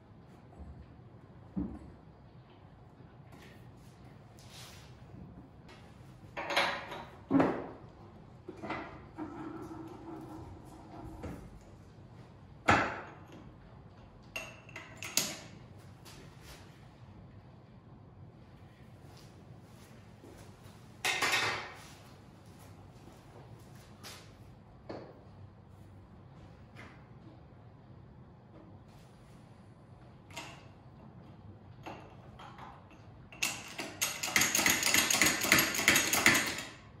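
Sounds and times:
hydraulic jack handle clicking and clanking: 33.4s - 36.7s.

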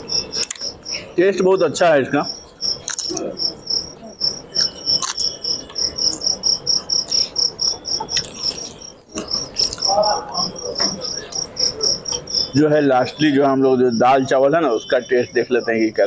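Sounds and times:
cricket chirping: 0.0s - 16.0s.

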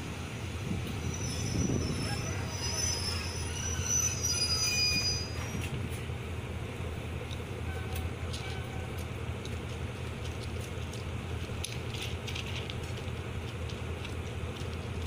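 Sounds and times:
low rumble of train carriage: 0.0s - 15.0s
train wheels squealing on rails: 0.7s - 6.0s, 7.6s - 9.0s.

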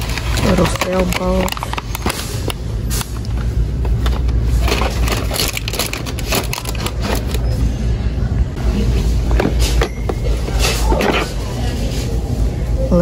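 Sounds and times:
plastic packaging crinkling: 0.0s - 2.5s, 3.9s - 7.4s.

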